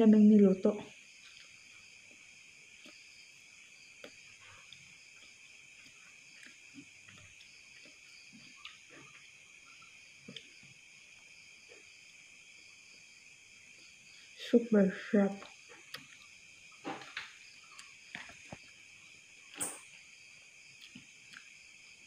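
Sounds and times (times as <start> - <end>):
crickets chirping: 0.0 - 22.0.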